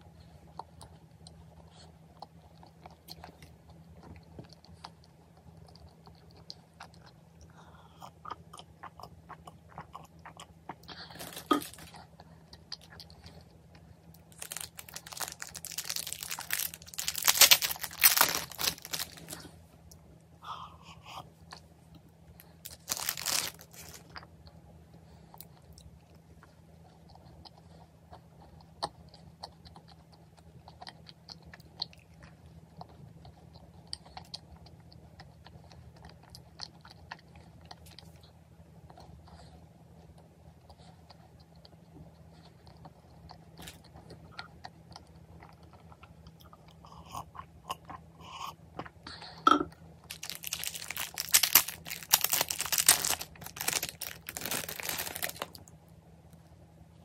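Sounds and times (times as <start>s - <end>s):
soft chewing: 0.0s - 57.0s
plastic wrapper crinkling: 11.1s - 12.0s, 14.2s - 19.6s, 22.4s - 24.1s, 50.1s - 55.7s.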